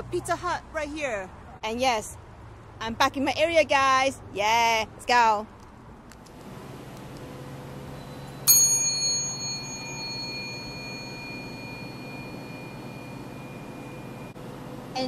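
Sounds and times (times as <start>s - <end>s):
small metal bell ringing: 8.1s - 14.4s.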